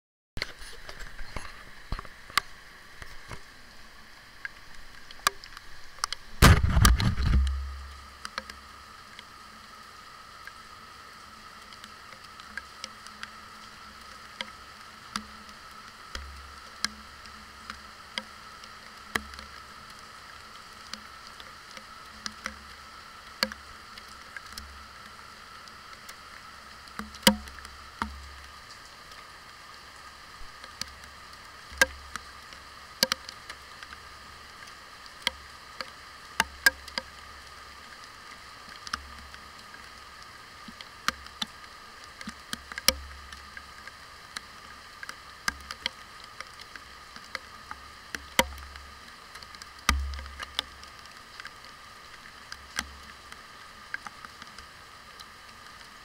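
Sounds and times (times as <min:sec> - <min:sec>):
rain hiss: 0:00.4 - 0:56.0
raindrops ticking on case: 0:04.4 - 0:09.3, 0:11.6 - 0:29.3, 0:30.3 - 0:55.9
camera handling noise: 0:06.4 - 0:07.6.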